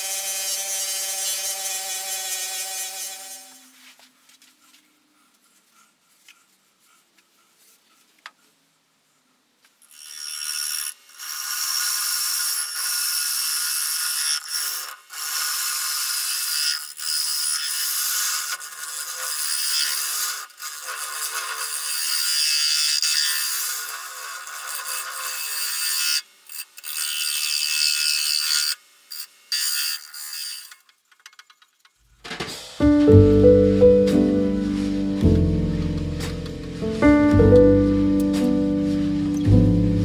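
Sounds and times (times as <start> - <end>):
lathe chisel scraping wood: 0.0 - 4.0, 9.9 - 28.8.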